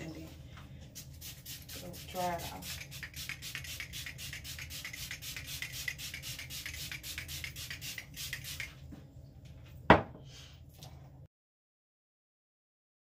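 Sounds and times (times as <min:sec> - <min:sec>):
rubbing strokes on skin: 0:00.9 - 0:08.8.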